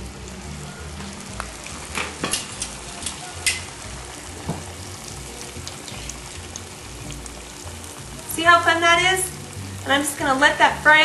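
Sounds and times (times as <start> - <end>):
dough sizzling in hot oil: 0.0 - 11.0
metal tongs clicking: 2.2 - 3.7.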